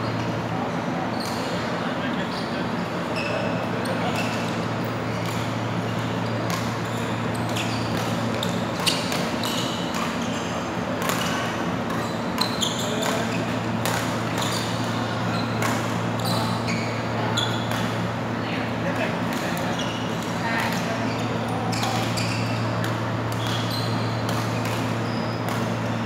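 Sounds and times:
shoes squeaking on court: 0.0 - 18.2, 18.9 - 26.0
rackets hitting shuttlecock: 11.0 - 16.4, 21.7 - 25.9.

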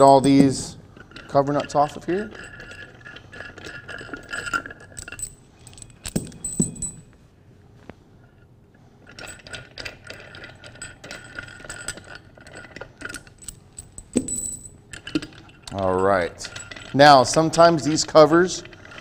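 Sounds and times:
metal nuts rattling and clinking: 0.0 - 7.2, 9.0 - 19.0.

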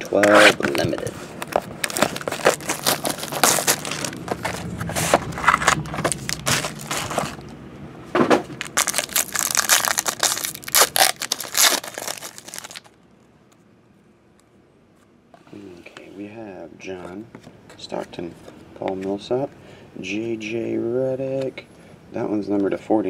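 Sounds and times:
foil wrapper crinkling and tearing: 0.3 - 7.5, 8.6 - 13.0.

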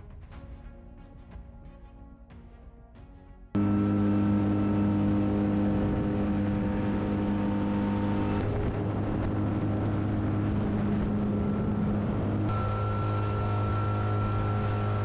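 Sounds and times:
outboard motor running: 3.6 - 15.0
water rushing along hull: 3.6 - 15.0.

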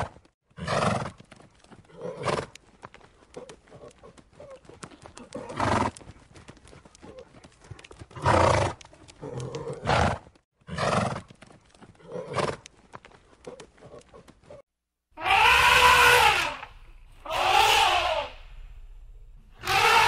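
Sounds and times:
hoof clicks: 0.0 - 14.6
elephant calling: 15.2 - 18.6, 19.5 - 20.0.

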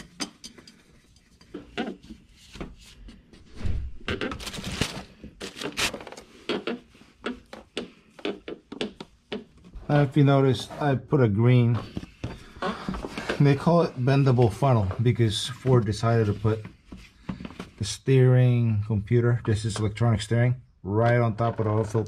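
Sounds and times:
tools clinking and tapping: 0.0 - 2.0.

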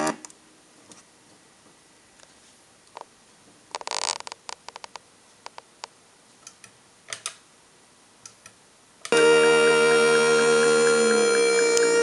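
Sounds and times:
synthesized chord music: 9.2 - 12.0.

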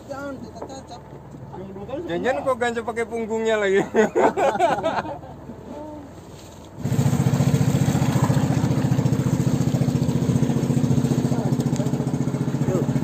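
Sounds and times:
boat engine running: 6.8 - 13.0.

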